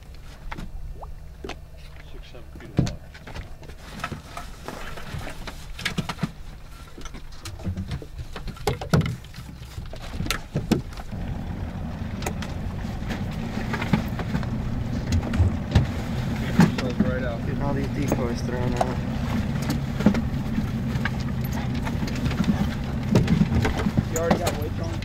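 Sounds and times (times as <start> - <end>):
boat motor rumble: 0.0 - 25.0
decoys knocking and clunking: 7.0 - 25.0.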